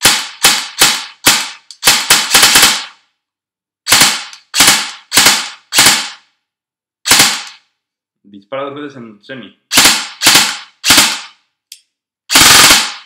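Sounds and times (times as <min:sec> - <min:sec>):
airsoft gun shots: 0:00.0 - 0:03.0, 0:03.9 - 0:06.2, 0:07.0 - 0:07.6, 0:09.7 - 0:11.4, 0:12.3 - 0:13.0.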